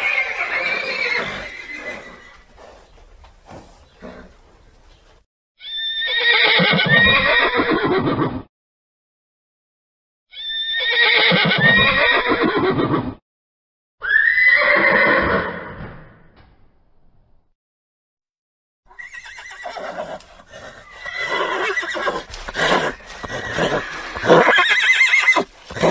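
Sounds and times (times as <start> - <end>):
horse neighing: 0.0 - 2.5, 5.6 - 8.5, 10.3 - 13.1, 14.0 - 15.8, 18.9 - 25.9.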